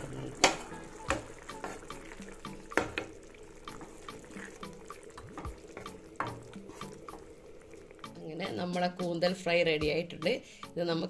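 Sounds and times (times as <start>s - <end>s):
spatula knocking against pan: 0.4s - 4.3s, 5.2s - 7.3s
thick gravy squelching: 3.2s - 8.2s.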